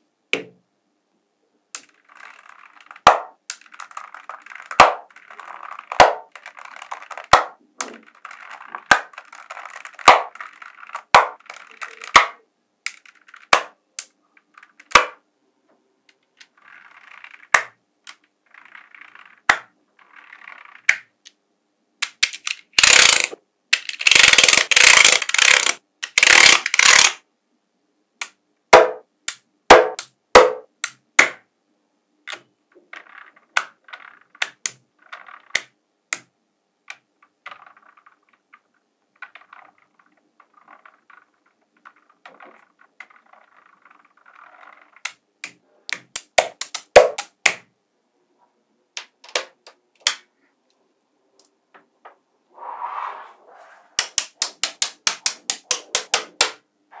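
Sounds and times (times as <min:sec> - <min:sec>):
balls rattling clatter: 0:01.8 - 0:15.0, 0:16.2 - 0:21.2, 0:22.2 - 0:27.2, 0:32.7 - 0:35.8, 0:36.9 - 0:45.6
balls rolling and scraping: 0:01.8 - 0:15.2, 0:15.8 - 0:21.2, 0:32.8 - 0:35.8, 0:36.9 - 0:45.9, 0:51.6 - 0:57.0
magnetic balls clicking together: 0:01.8 - 0:15.2, 0:16.1 - 0:21.4, 0:22.0 - 0:27.2, 0:32.2 - 0:47.7, 0:54.0 - 0:56.6.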